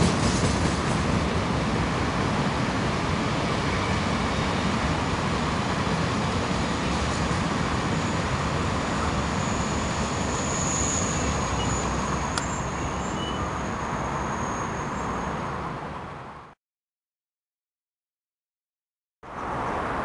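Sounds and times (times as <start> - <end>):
train wagons rolling: 0.0 - 1.8
road traffic noise: 0.0 - 16.6, 19.2 - 20.0
thin high-pitched squeal: 9.3 - 15.5.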